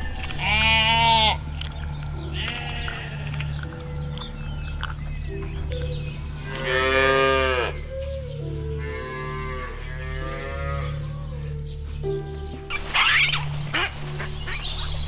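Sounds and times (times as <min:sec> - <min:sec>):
low music drone: 0:00.0 - 0:15.0
cattle mooing: 0:00.4 - 0:01.5, 0:02.3 - 0:03.6, 0:06.4 - 0:07.8, 0:08.8 - 0:11.0.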